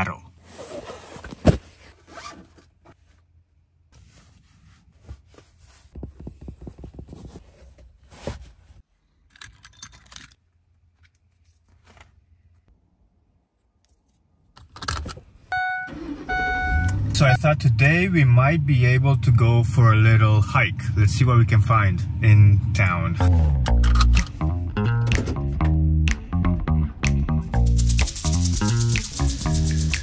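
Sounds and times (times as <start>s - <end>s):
rustling of clothes: 0.4s - 8.9s, 10.8s - 12.7s.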